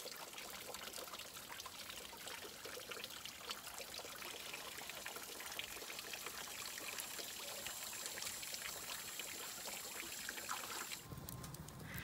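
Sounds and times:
shower water pouring: 4.2s - 11.0s.

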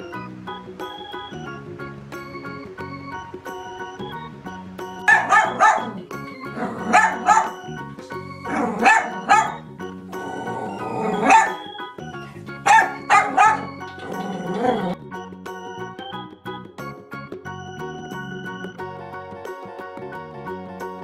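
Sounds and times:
background music: 0.0s - 21.0s
dog barking: 5.1s - 7.6s, 8.5s - 9.6s, 10.2s - 11.8s, 12.6s - 15.0s.

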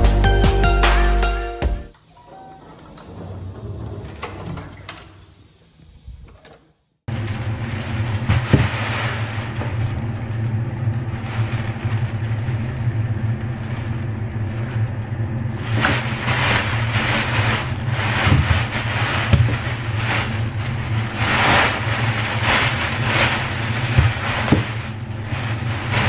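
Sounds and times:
plastic bag rustling and crinkling: 7.1s - 26.0s
steady low hum: 7.1s - 26.0s.

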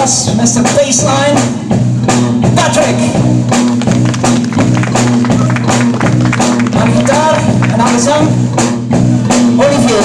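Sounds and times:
drum kit with cymbal hits: 0.0s - 10.0s
electric bass: 0.0s - 10.0s
bending melody line: 3.2s - 9.0s.

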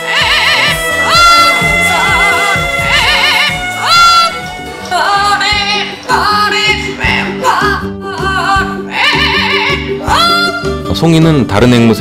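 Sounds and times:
parrot singing: 0.0s - 6.0s, 8.9s - 10.4s
background music with guitar: 0.0s - 12.0s.

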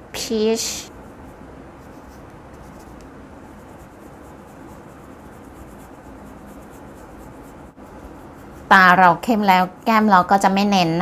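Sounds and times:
makeup brush brushing: 0.9s - 9.2s.

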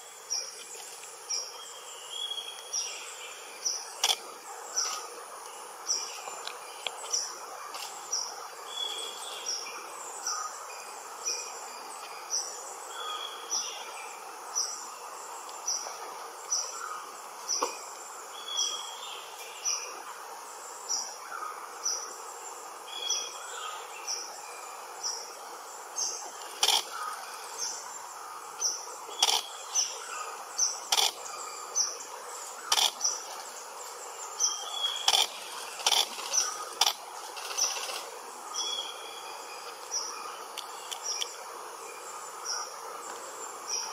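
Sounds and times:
insect hiss: 0.0s - 43.9s
sharp clicks: 4.0s - 4.2s, 26.6s - 26.9s, 29.2s - 29.4s, 30.9s - 31.2s, 32.7s - 33.0s, 35.0s - 36.2s.

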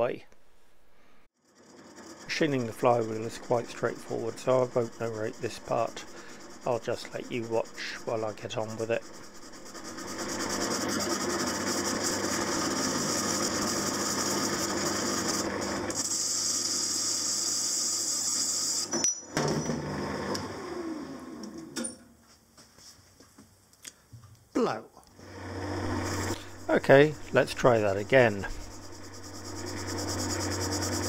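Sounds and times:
lathe tool cutting iron: 1.4s - 20.6s, 25.2s - 31.0s
metal lathe running: 1.5s - 20.4s, 25.2s - 31.0s.

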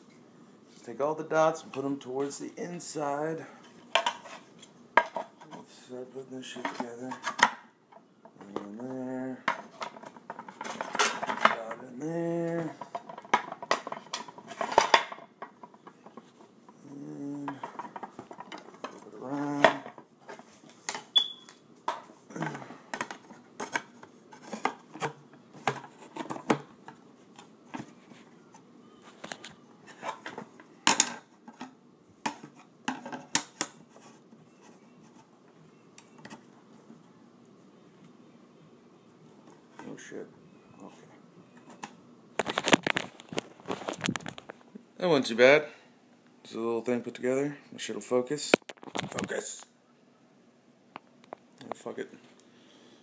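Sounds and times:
person humming: 16.8s - 17.6s, 19.2s - 19.8s.

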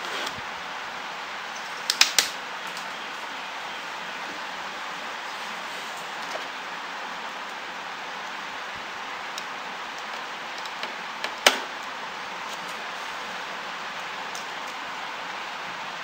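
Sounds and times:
steady hiss: 0.0s - 16.0s.

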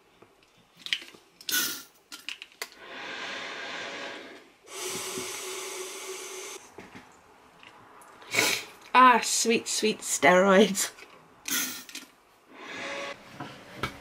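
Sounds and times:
inhaler puff hiss: 1.5s - 1.9s, 2.8s - 6.6s, 8.3s - 8.7s.

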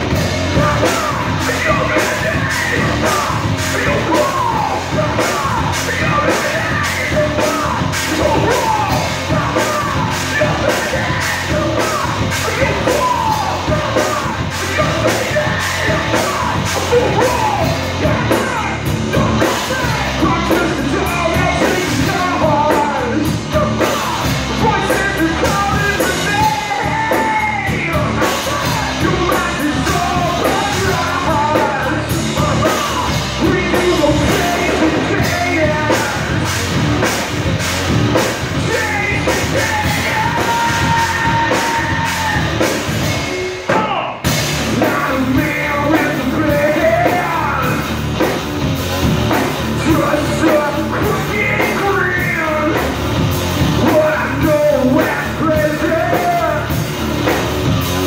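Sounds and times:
person singing: 0.0s - 48.4s, 49.0s - 53.0s, 53.6s - 58.0s
drum kit: 0.0s - 58.0s
electric guitars: 0.0s - 58.0s.

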